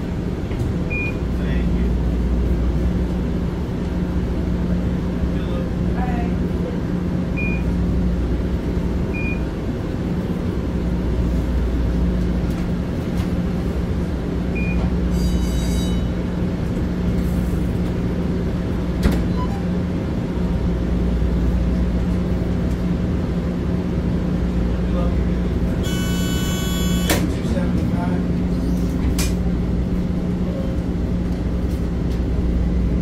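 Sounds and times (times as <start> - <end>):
low equipment hum: 0.0 - 33.0
high ringing tone: 15.1 - 16.1, 25.8 - 27.1
short high beeps: 25.8 - 27.1.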